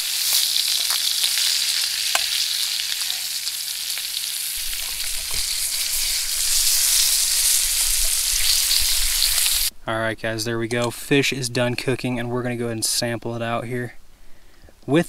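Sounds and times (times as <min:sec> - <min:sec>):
fish sizzling in a pan: 0:00.0 - 0:09.7.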